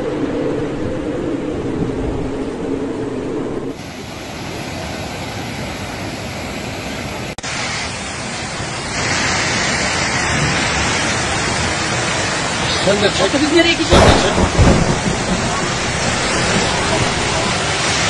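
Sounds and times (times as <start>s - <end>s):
wind buffeting microphone: 0.0s - 3.8s, 9.6s - 18.0s
floodwater rushing: 1.6s - 18.0s.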